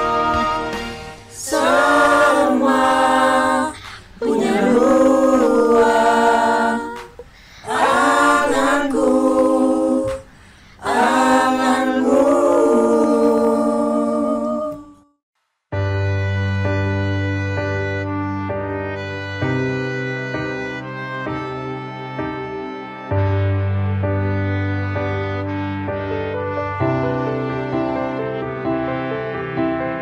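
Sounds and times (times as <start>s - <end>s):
choir singing unaccompanied: 0.0s - 15.2s.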